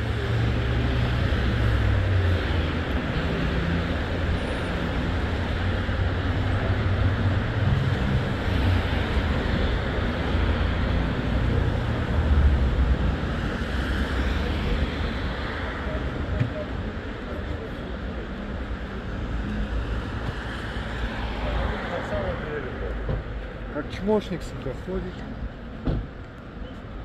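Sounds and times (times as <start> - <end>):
road vehicle rumble: 0.0 - 27.0.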